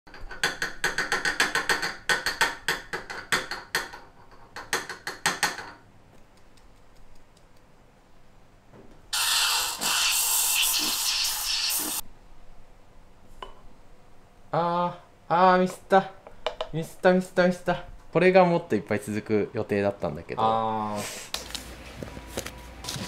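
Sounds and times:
espresso steam wand hissing: 9.2 - 12.0.

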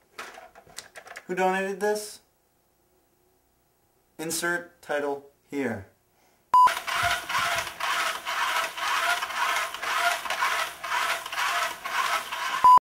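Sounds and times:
short loud beep: 6.6 - 6.8
toy truck motor whirring: 6.7 - 12.8.

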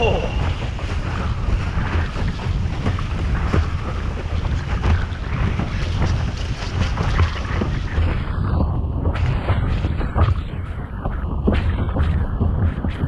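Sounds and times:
board rushing across water: 0.0 - 10.7
water slapping and splashing: 0.0 - 13.0
wind buffeting microphone: 0.0 - 13.0.

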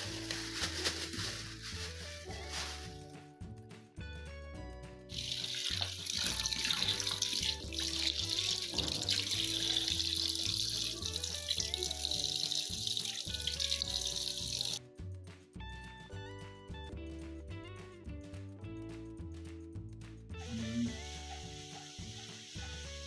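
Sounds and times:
background music: 0.0 - 23.0
tap water running into sink: 5.1 - 14.8.

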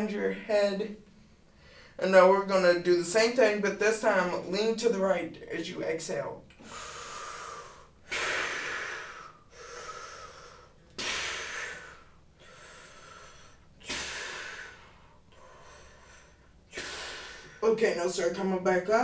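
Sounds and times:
person breathing deeply: 1.2 - 2.0, 6.6 - 17.6.

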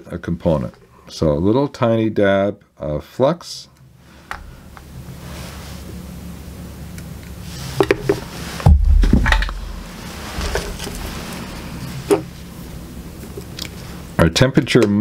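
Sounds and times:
steady low hum: 0.0 - 15.0
heavy low thump: 8.6 - 10.5.

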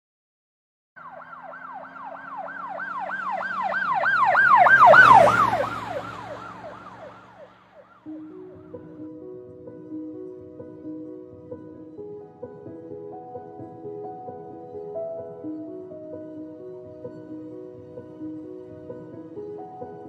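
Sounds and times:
vehicle passing rush: 1.0 - 8.1
ambulance siren yelping: 1.0 - 8.8.

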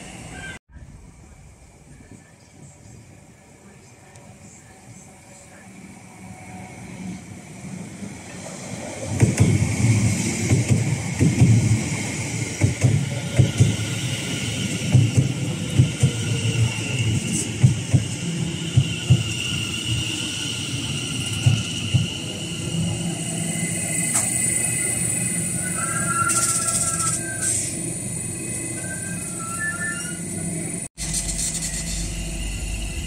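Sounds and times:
train high whine: 0.0 - 33.0
train wheels knocking on rail joints: 9.1 - 9.8, 10.4 - 11.9, 12.5 - 13.9, 14.8 - 16.3, 17.6 - 19.5.

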